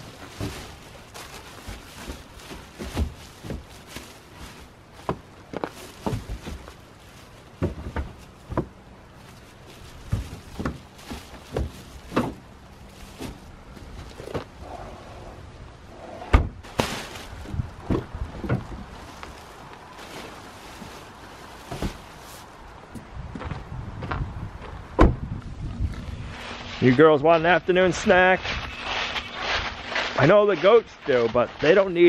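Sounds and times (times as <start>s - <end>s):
bags thumping down: 0.0s - 14.6s, 16.4s - 22.4s
plastic bags rustling: 0.0s - 14.6s, 16.6s - 22.7s.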